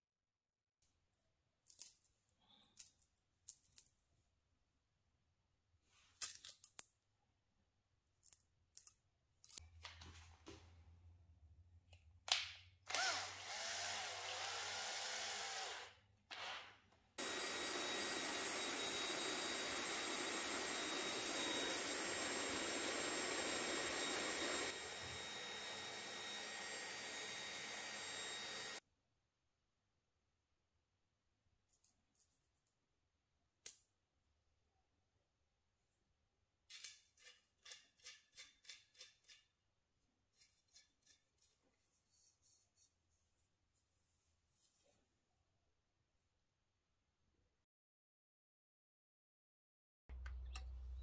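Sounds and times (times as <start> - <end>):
power tool running on metal: 13.0 - 15.9, 17.2 - 28.8
tools clicking and knocking: 36.7 - 39.5.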